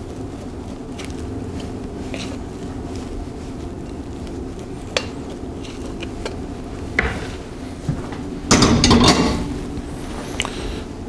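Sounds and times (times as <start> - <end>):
cookware clattering: 8.1 - 9.6.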